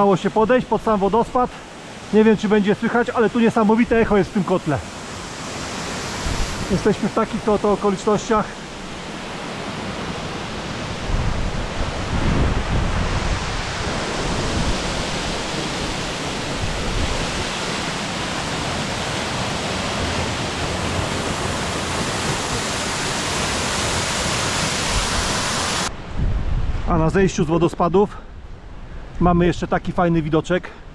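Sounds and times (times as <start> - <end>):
waterfall rushing onto rocks: 13.8 - 25.9.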